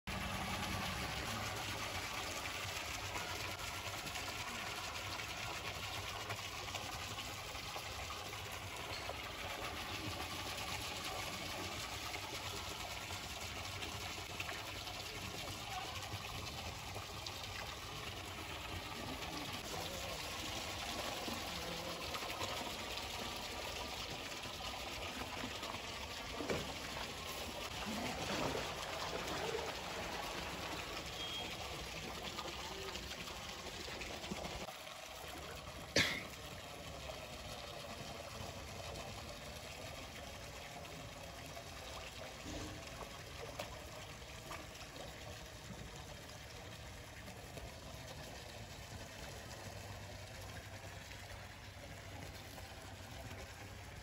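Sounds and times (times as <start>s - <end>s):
pool water trickling and sloshing: 0.1s - 54.0s.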